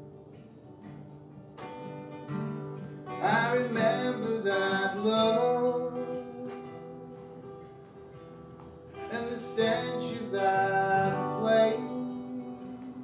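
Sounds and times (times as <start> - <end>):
acoustic guitar waltz: 0.0 - 13.0
man singing: 3.1 - 7.2, 9.0 - 13.0.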